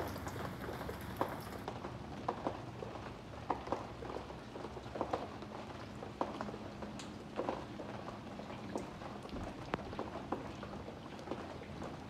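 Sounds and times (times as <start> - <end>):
light rain hissing: 0.0 - 1.7.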